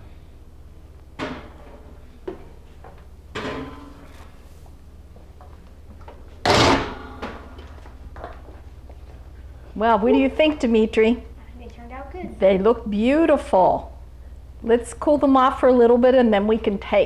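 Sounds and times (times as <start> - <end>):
loud metal clatter: 6.4 - 7.2.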